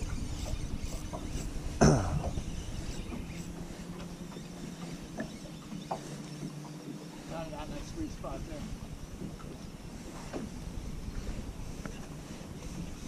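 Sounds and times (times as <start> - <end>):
wind noise on microphone: 0.0 - 3.7, 7.4 - 13.0.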